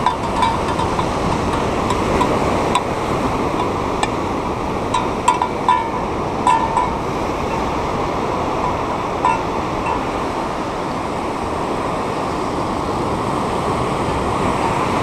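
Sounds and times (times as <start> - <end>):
small bell jingling: 0.0 - 2.4, 5.0 - 7.0, 8.6 - 10.1
heavy surf breaking on rocks: 0.0 - 15.0.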